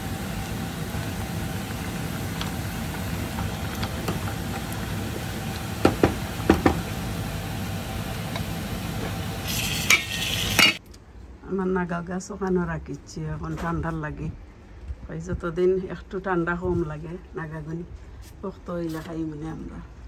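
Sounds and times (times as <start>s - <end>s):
pot simmering and steaming: 0.0s - 10.8s
wooden spoon knocking on pot: 5.8s - 6.9s.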